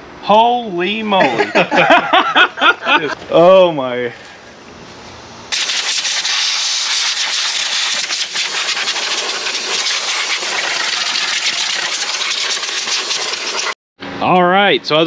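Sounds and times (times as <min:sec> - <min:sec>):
hose water spraying on metal: 0:05.5 - 0:13.8.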